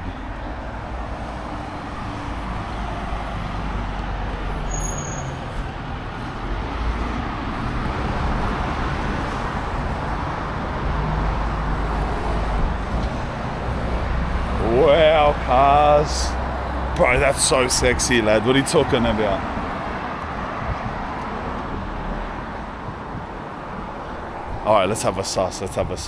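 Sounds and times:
road traffic passing: 0.0s - 26.0s
high-pitched squeak: 4.6s - 5.5s.

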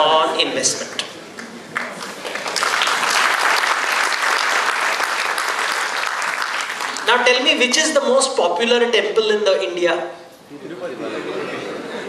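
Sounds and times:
audience applauding: 1.3s - 7.1s.

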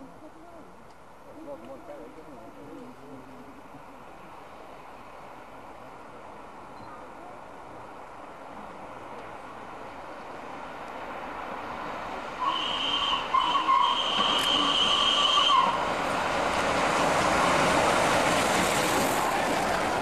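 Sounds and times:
train approaching: 7.7s - 20.0s
steam locomotive whistle: 12.4s - 15.9s.

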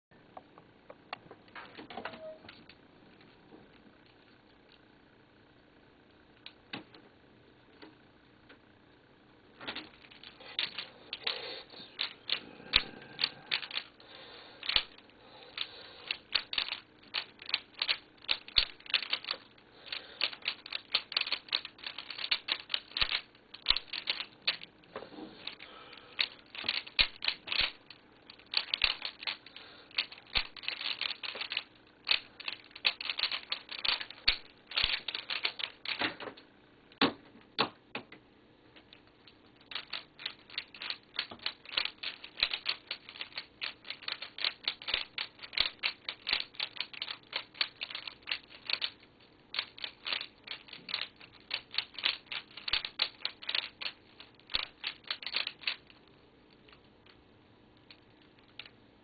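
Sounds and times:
puzzle cube plastic clicks: 9.6s - 36.4s, 38.9s - 58.8s.

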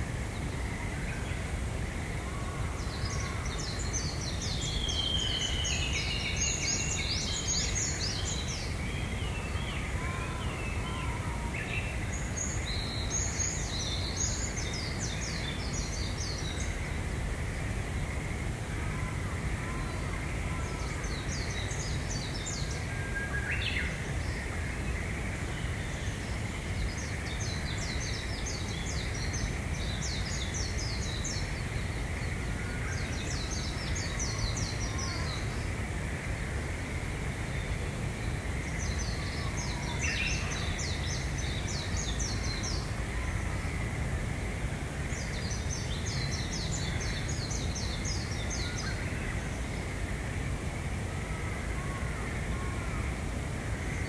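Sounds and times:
low background noise: 0.0s - 54.0s.

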